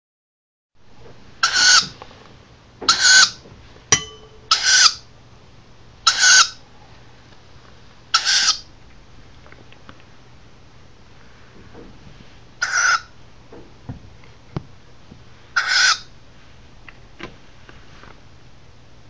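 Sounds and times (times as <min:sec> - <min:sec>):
owl chick raspy calls: 0:01.4 - 0:01.9, 0:02.9 - 0:03.4, 0:04.5 - 0:05.0, 0:06.0 - 0:06.6, 0:08.1 - 0:08.7, 0:12.6 - 0:13.2, 0:15.6 - 0:16.1
sharp click with ring: 0:04.0 - 0:04.4.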